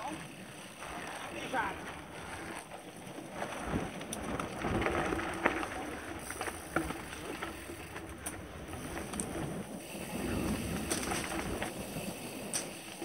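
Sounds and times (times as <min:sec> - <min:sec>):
bike tyres on dirt and gravel: 0:00.0 - 0:13.0
bike knocks and rattles: 0:03.4 - 0:13.0.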